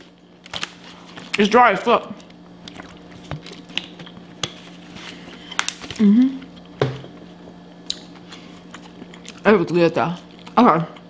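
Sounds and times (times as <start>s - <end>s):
person humming: 5.9s - 6.5s.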